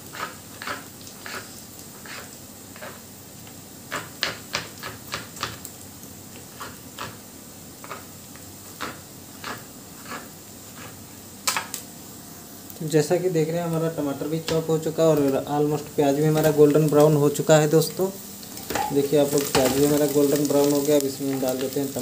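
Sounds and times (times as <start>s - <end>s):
knife chopping on plastic board: 3.9s - 5.6s
faint hiss: 11.9s - 22.0s.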